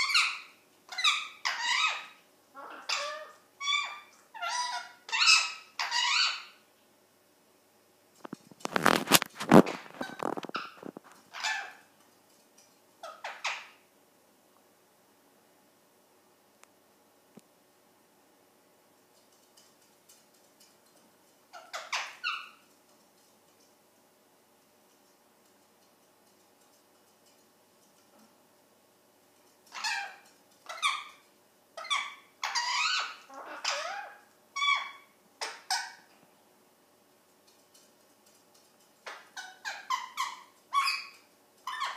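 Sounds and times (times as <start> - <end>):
parrot squawking: 0.0 - 6.6, 9.9 - 11.9, 13.0 - 13.8, 21.5 - 22.6, 29.7 - 31.2, 31.8 - 36.1, 39.0 - 41.9.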